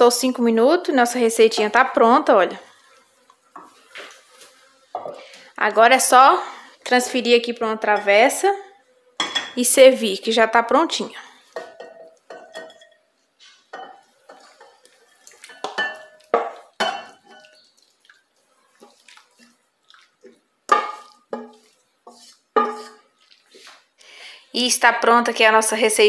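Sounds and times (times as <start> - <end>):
wooden spoon scraping metal pot: 11.5 - 17.8, 18.4 - 23.9
pot clinking against glass: 11.6 - 13.1, 13.7 - 17.6.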